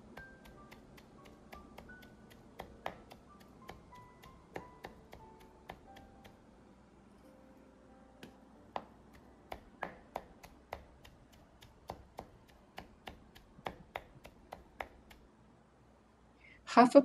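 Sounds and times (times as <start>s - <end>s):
knife chopping on wooden board: 0.0s - 6.4s, 8.2s - 15.2s.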